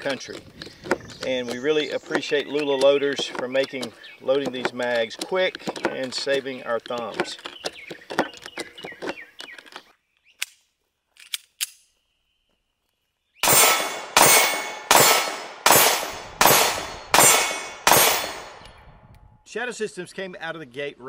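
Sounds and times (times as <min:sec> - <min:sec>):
cartridges clicking into magazine: 0:11.2 - 0:11.9
pistol shots ringing: 0:13.4 - 0:18.8.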